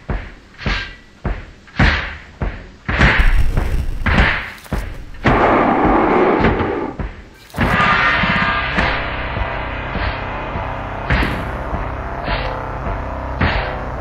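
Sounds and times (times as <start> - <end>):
sharp dramatic hits with hiss: 2.8 - 12.7
steady rushing noise: 3.0 - 7.3.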